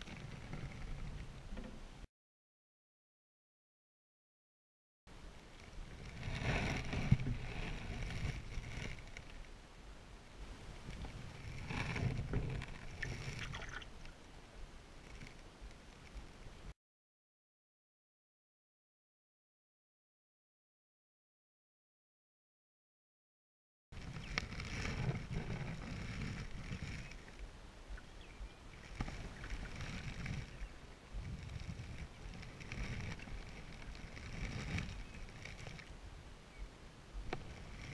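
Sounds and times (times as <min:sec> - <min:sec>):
wind on microphone: 0:05.7 - 0:09.2, 0:24.0 - 0:37.9
canoe paddle splashing: 0:10.6 - 0:14.1, 0:24.0 - 0:30.7.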